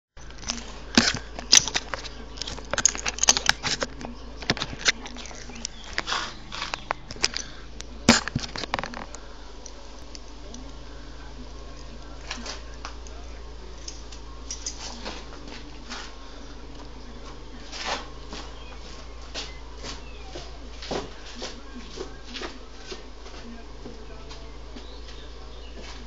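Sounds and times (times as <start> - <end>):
steady low hum: 0.2 - 26.0
rubbing on phone microphone: 0.3 - 9.3.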